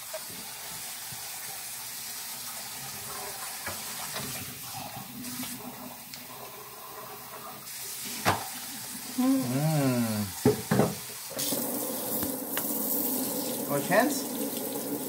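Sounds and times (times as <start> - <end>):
faucet running into sink: 10.4 - 15.0.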